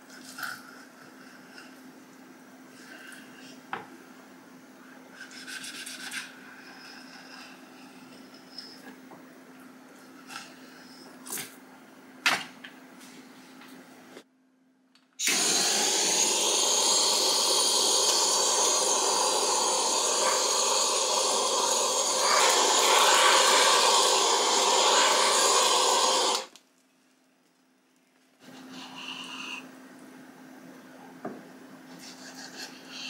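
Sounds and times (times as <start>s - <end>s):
gas torch hissing: 15.2s - 26.6s.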